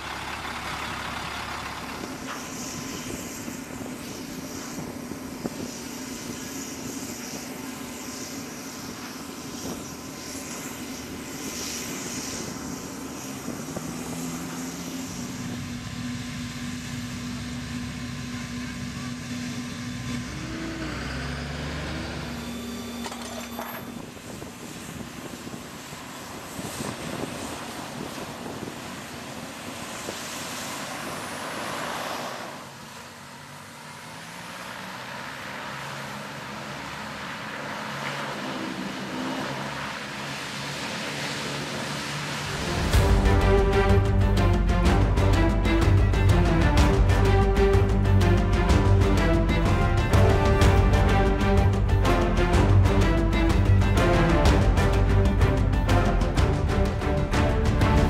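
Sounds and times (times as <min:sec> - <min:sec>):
hovercraft engine tone: 0:00.0 - 0:31.8
rush of air: 0:42.1 - 0:58.0.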